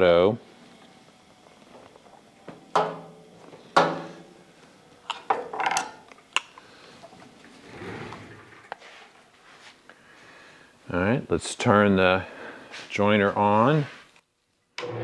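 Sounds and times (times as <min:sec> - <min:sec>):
soft rustle: 0:08.8 - 0:10.3.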